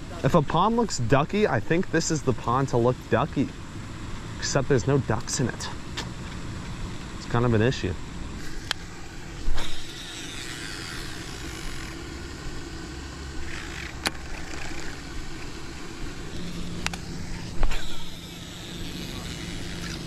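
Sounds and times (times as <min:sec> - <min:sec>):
steady outdoor rumble: 0:00.0 - 0:20.0
fishing reel clicks: 0:09.6 - 0:12.0.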